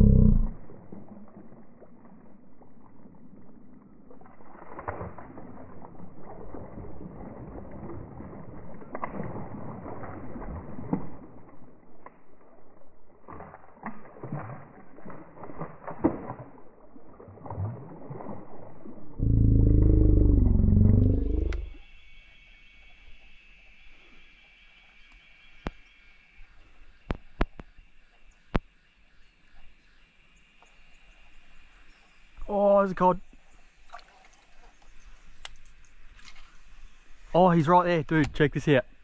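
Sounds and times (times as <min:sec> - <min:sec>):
loud low rumbling: 0:00.0 - 0:00.6, 0:19.2 - 0:21.8
fish splashing at surface: 0:04.1 - 0:11.2, 0:13.2 - 0:21.7.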